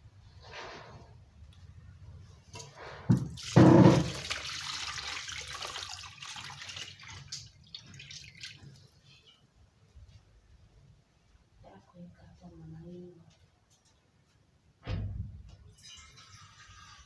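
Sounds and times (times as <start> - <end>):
water splashing and pouring: 3.1 - 9.0
water trickling and dripping: 3.2 - 9.4.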